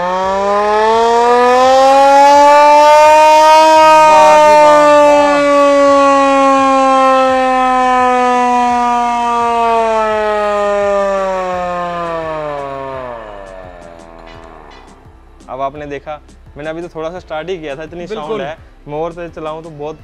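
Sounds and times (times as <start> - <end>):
hand-cranked siren wailing: 0.0 - 15.2.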